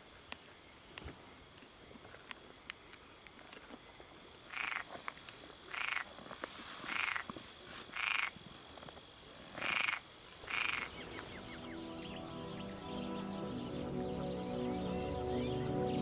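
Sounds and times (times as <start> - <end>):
frog croaking: 4.5 - 5.0, 5.7 - 6.2, 6.8 - 7.3, 7.9 - 8.4, 9.4 - 12.8.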